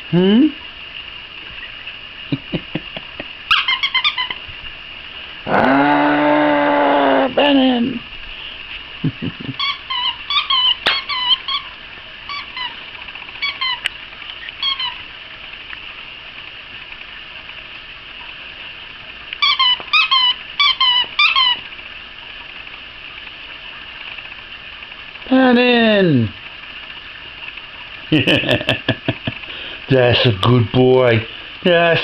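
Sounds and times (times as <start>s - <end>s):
dog toy squeaking: 3.5s - 4.4s, 9.6s - 12.8s, 13.4s - 15.0s, 19.4s - 21.6s.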